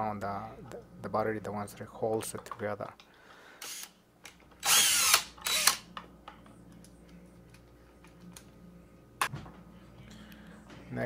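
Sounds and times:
cordless drill running: 3.6 - 3.9, 4.6 - 5.8.

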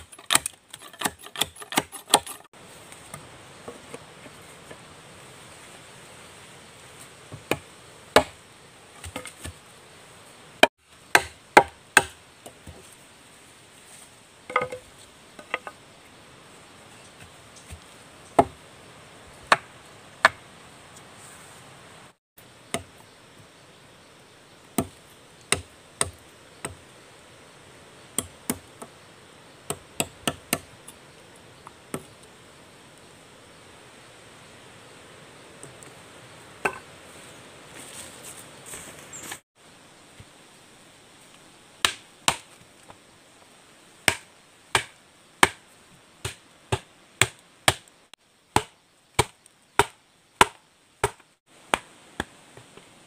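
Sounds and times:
machete chopping wood: 0.0 - 2.5, 7.3 - 8.4, 11.1 - 12.2, 18.4 - 18.6, 41.8 - 42.5, 44.0 - 45.6, 46.2 - 47.9, 48.5 - 52.3.

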